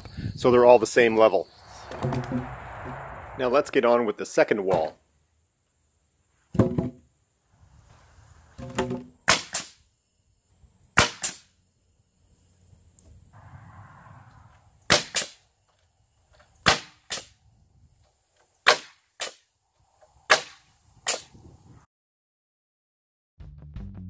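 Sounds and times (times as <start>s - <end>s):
pneumatic nailer firing into wood: 8.7s - 9.8s, 11.0s - 11.5s, 14.9s - 15.4s, 16.6s - 17.3s, 18.6s - 19.4s, 20.3s - 21.4s.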